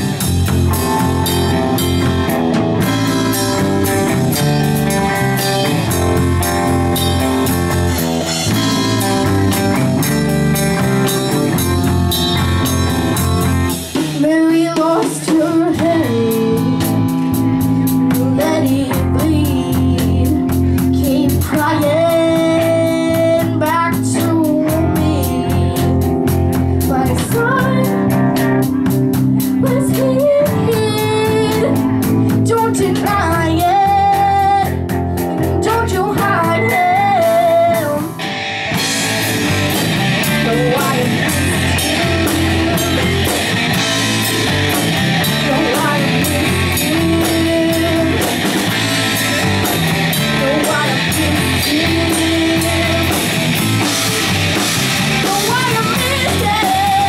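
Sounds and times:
bass guitar: 0.0s - 57.0s
drum kit: 0.0s - 57.0s
electric guitars: 0.0s - 57.0s
girl singing: 14.0s - 38.2s, 40.2s - 43.6s, 45.2s - 48.9s, 50.2s - 53.4s, 55.2s - 57.0s.

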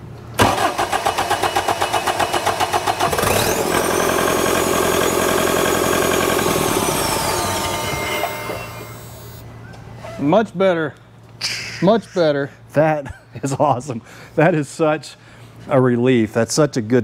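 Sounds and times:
diesel engine cranking and starting: 0.4s - 9.4s
turbocharger whistle: 3.1s - 9.5s.

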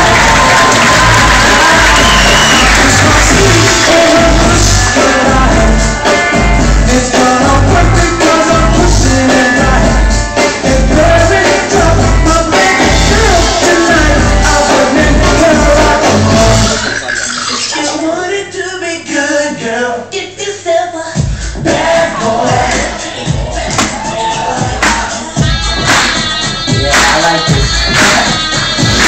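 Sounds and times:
dance music with heavy bass: 0.0s - 5.8s.

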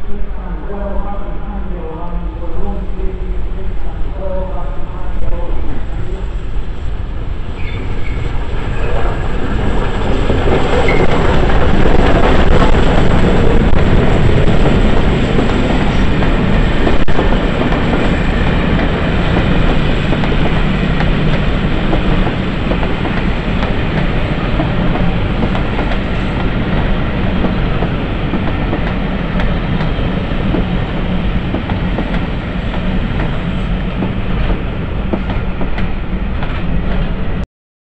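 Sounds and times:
train rumble: 0.0s - 37.4s
train wheels clattering over rails: 7.6s - 37.2s.

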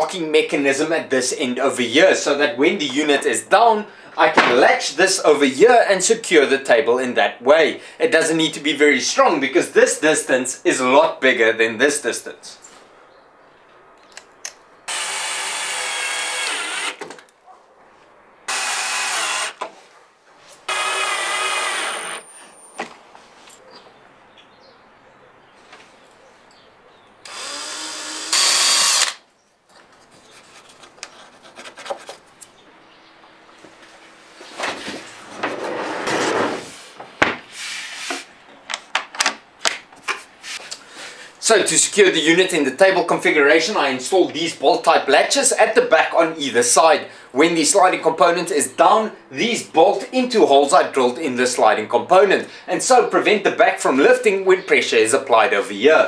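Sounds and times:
cordless drill driving screws: 14.9s - 17.2s, 18.5s - 19.7s, 20.7s - 22.5s, 27.2s - 29.2s
wood sliding and rubbing: 33.9s - 38.3s.

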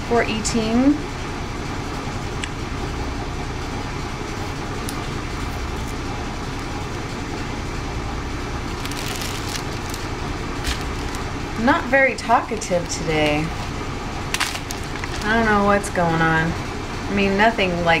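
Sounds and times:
washing machine running: 0.0s - 18.0s
plastic bags rustling: 8.7s - 15.9s.

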